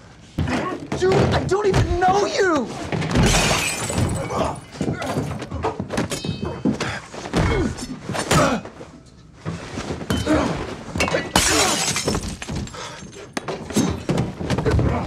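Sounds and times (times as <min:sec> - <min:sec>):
glass breaking: 0:03.2 - 0:04.8, 0:11.1 - 0:12.8
punches and thuds: 0:07.2 - 0:08.6.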